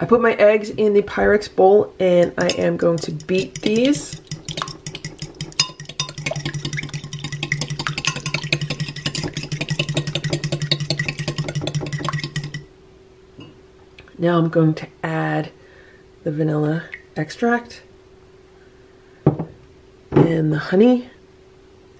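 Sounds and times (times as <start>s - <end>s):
fork beating eggs in glass bowl: 2.2s - 12.7s.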